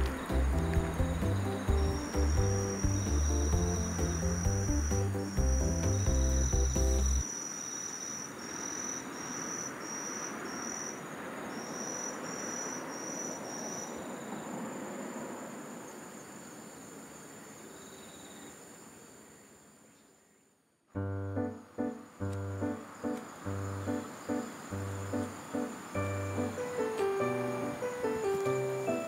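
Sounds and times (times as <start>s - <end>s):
background music: 0.0s - 7.2s, 21.0s - 29.0s
outdoor hiss: 0.0s - 29.0s
insect trilling: 1.4s - 14.2s.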